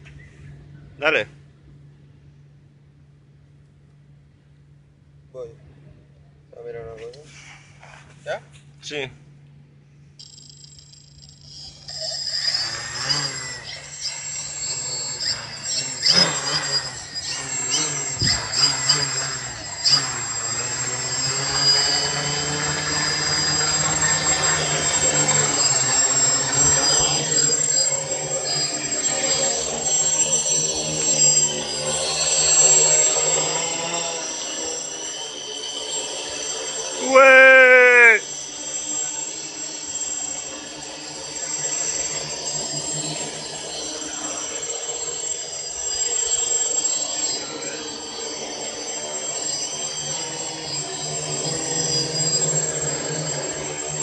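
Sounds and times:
drone propellers buzzing whine: 0:09.3 - 0:54.0
drone propellers buzzing: 0:10.2 - 0:25.1.

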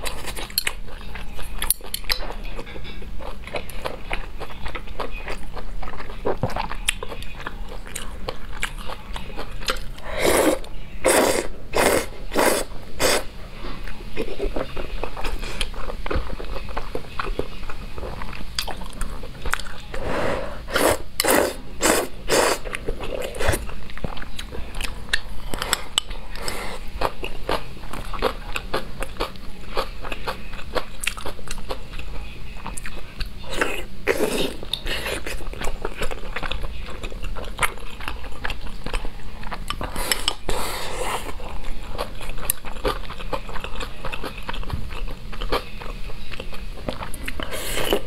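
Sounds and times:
wet chewing: 0:00.0 - 0:20.0, 0:20.7 - 0:48.0
loud noodle slurping: 0:10.0 - 0:13.3, 0:20.0 - 0:22.7.

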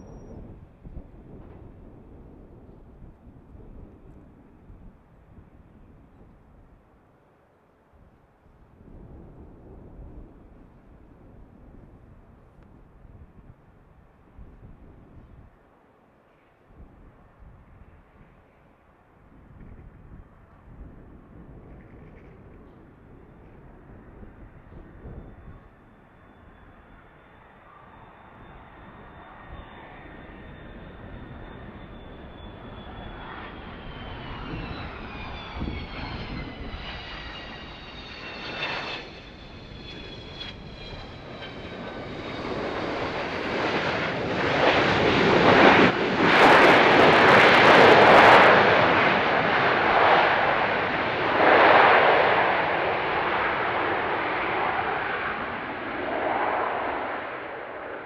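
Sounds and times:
jet engines whining and roaring: 0:16.2 - 0:58.0.

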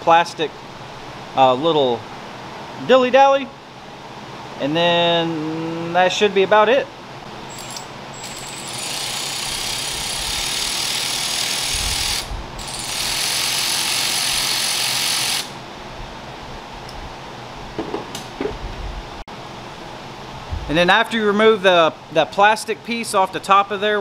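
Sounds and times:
powered ratchet whirring: 0:07.5 - 0:15.6.

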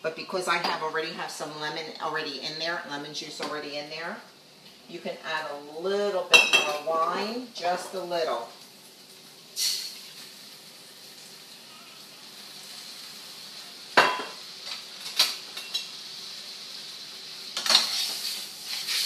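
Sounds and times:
sauce sizzling in skillet: 0:04.2 - 0:19.0.

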